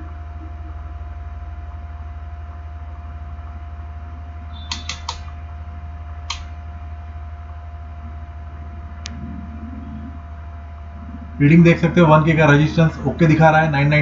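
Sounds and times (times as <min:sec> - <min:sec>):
faint whine: 0:00.0 - 0:14.0
low electrical hum: 0:00.0 - 0:14.0
multimeter clicks: 0:04.7 - 0:05.3.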